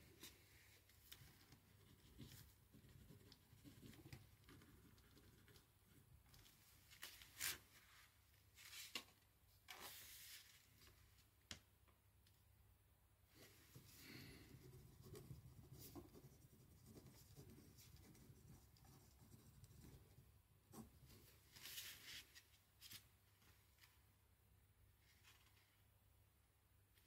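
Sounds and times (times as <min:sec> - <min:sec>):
paper rustling: 0:06.4 - 0:11.2, 0:21.2 - 0:24.0, 0:25.0 - 0:25.8.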